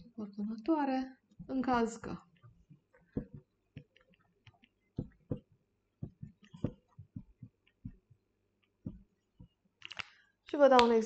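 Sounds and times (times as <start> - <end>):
marker tapping and squeaking on whiteboard: 1.3 - 10.0.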